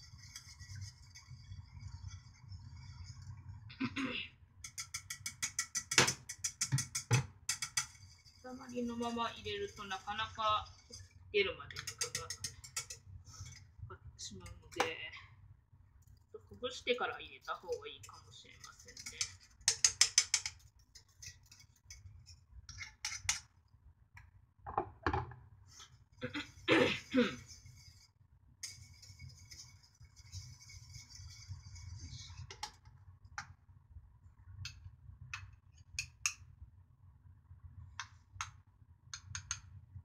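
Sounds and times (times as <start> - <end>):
spoon scraping and tapping: 0.0 - 3.2, 4.6 - 13.7, 14.4 - 15.0, 17.5 - 23.5, 27.3 - 33.6, 35.4 - 36.5
wire whisk stirring in saucepan: 0.0 - 3.6, 4.6 - 14.9, 16.0 - 23.6, 25.8 - 32.9
metal tapping on pan: 4.6 - 8.1, 11.7 - 13.6, 18.0 - 22.1, 22.7 - 23.5.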